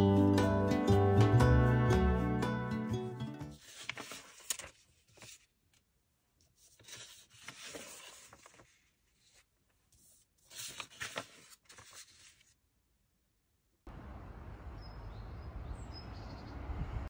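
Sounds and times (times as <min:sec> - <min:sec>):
paper sheets rustling: 0:03.4 - 0:05.8, 0:06.4 - 0:12.6.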